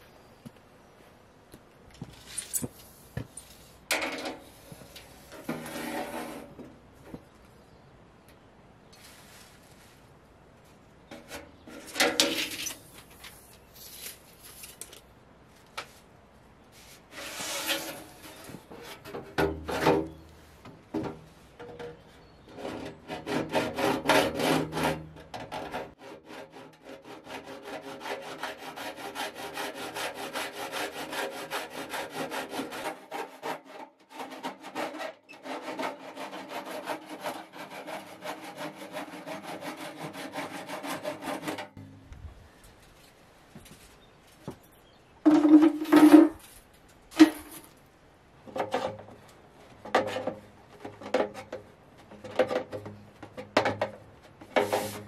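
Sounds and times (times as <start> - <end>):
metallic scrapes and creaks: 2.1 - 6.7, 16.8 - 20.6
hacksaw cutting metal pipe: 22.5 - 41.8.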